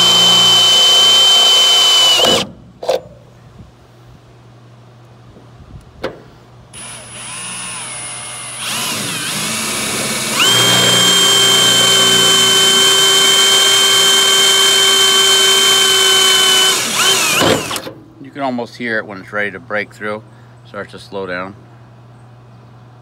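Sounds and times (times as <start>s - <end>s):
cordless drill whining: 0.0s - 2.4s, 6.8s - 17.9s.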